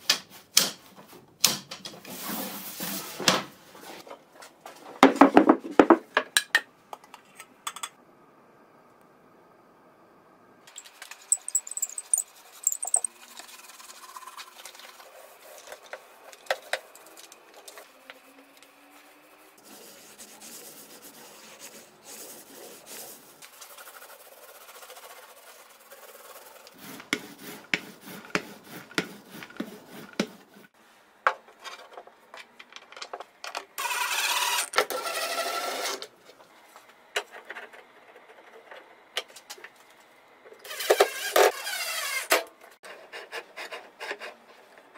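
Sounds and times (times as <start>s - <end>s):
paint roller rubbing over plywood: 19.0s - 30.8s.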